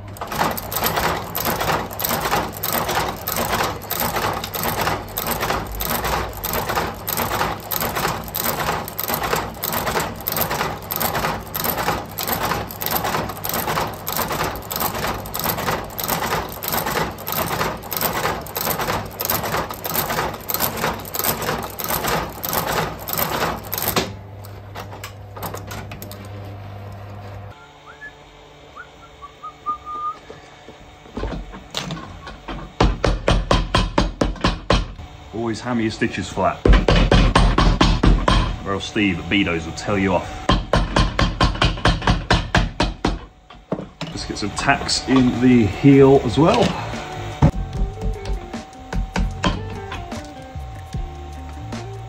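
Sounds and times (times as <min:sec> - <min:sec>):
stitching machine clacks: 0:00.0 - 0:26.4, 0:31.6 - 0:35.0, 0:36.7 - 0:38.5, 0:40.4 - 0:43.3, 0:44.0 - 0:46.8
steady motor hum: 0:00.0 - 0:52.0.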